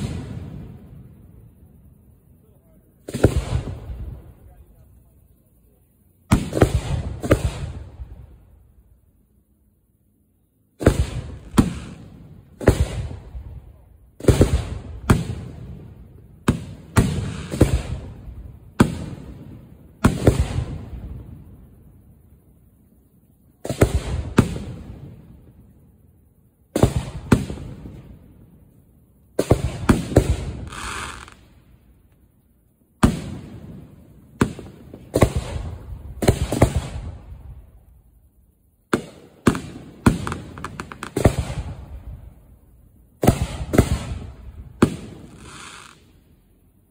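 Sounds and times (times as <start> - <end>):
firework booms with echo: 0.0 - 1.6, 3.0 - 4.7, 6.3 - 8.6, 10.8 - 21.9, 23.6 - 25.7, 26.7 - 28.6, 29.3 - 31.6, 33.0 - 38.0, 38.9 - 42.6, 43.2 - 46.2.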